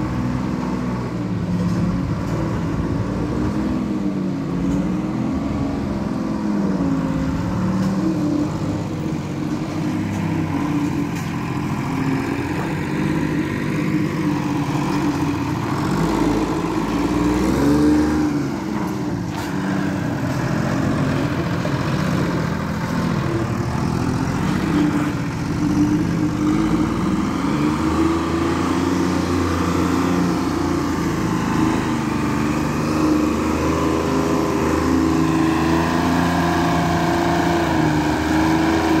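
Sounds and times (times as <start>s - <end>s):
road roller engine running: 0.0s - 39.0s.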